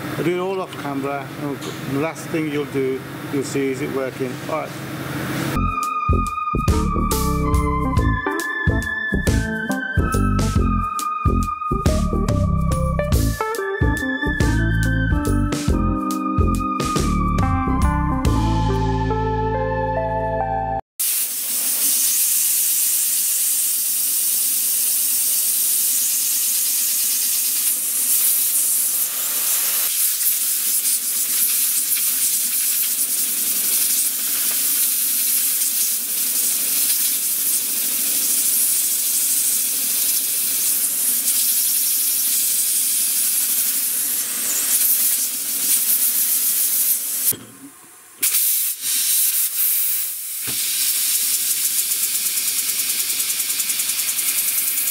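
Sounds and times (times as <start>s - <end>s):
small engine gas hiss: 21.0s - 47.3s, 48.2s - 54.9s.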